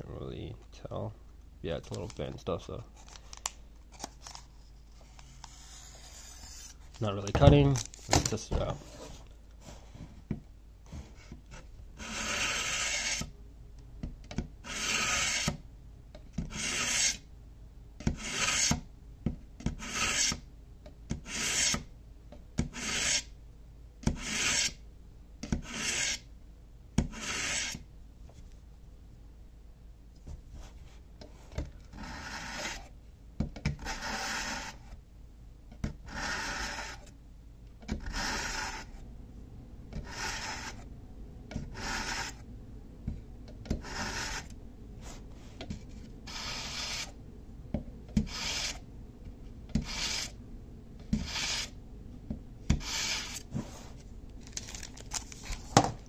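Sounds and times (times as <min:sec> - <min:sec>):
knife rasping through sharpener: 0:12.0 - 0:13.3, 0:14.7 - 0:15.5, 0:16.5 - 0:17.2, 0:18.2 - 0:18.8, 0:19.8 - 0:20.4, 0:22.8 - 0:23.3, 0:24.2 - 0:24.8, 0:25.6 - 0:26.2, 0:27.1 - 0:27.8, 0:46.3 - 0:47.1, 0:49.8 - 0:50.3, 0:51.2 - 0:51.8, 0:52.8 - 0:53.4.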